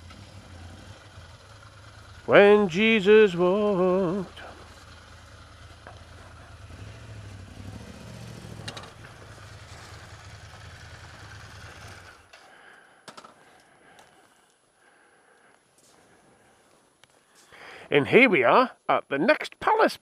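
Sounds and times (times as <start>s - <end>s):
motorcycle engine idling: 0.0s - 13.4s.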